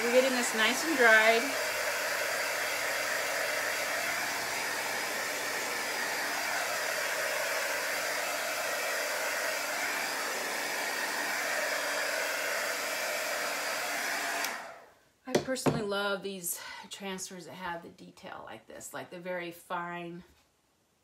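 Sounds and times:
handheld dryer blowing: 0.0s - 14.9s.

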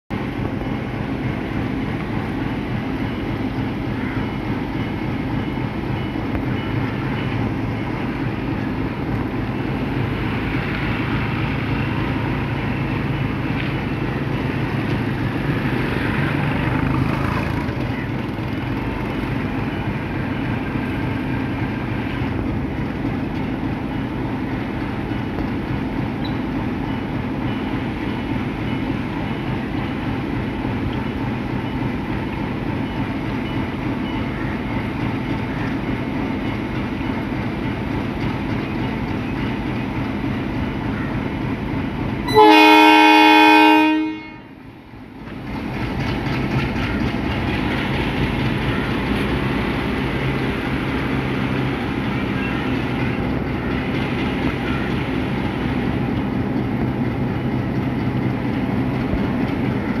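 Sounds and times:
diesel locomotive running: 0.1s - 60.0s
loud train horn blast: 42.2s - 44.7s.

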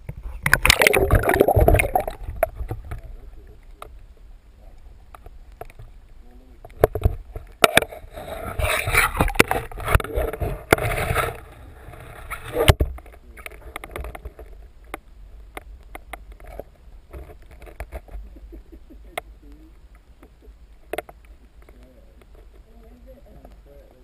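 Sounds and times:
sharp underwater clicks: 0.0s - 4.0s, 4.7s - 5.9s, 12.3s - 18.2s
underwater rush of water: 0.0s - 24.0s.

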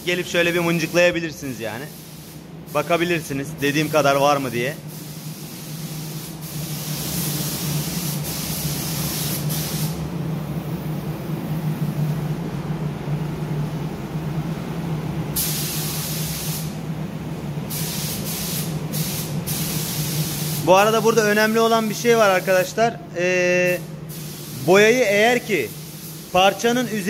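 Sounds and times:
steady low hum: 0.0s - 26.8s
paint spray gun hissing: 1.8s - 3.0s, 3.6s - 10.0s, 15.4s - 16.8s, 17.7s - 20.8s, 23.7s - 27.0s.

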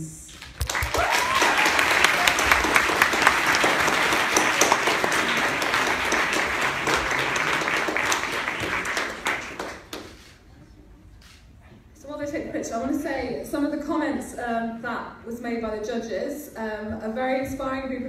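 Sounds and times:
audience applauding: 0.4s - 10.3s.

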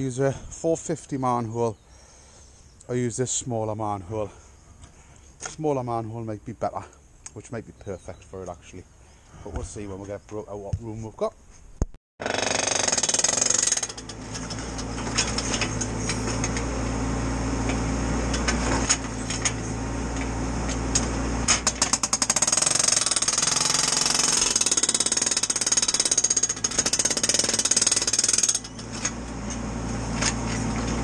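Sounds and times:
hydraulic breaker hammering concrete: 12.2s - 16.6s, 21.0s - 28.8s.

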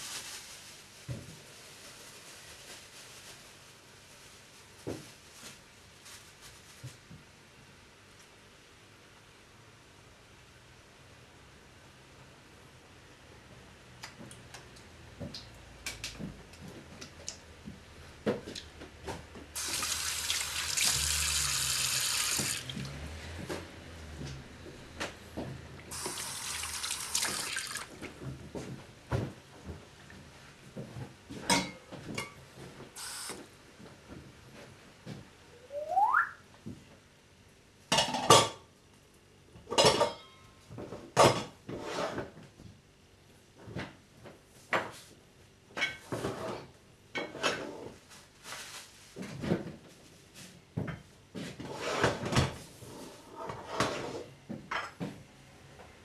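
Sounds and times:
tap running: 19.6s - 23.6s, 24.2s - 28.0s
short rising squeak: 35.6s - 36.4s
dishes and cutlery clinking: 39.7s - 40.6s.

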